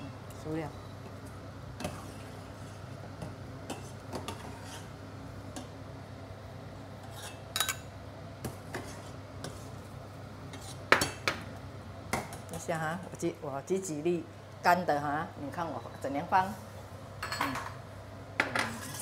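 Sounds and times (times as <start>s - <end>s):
metal ladle scraping saucepan: 3.7s - 4.9s, 7.0s - 7.8s, 18.6s - 19.0s.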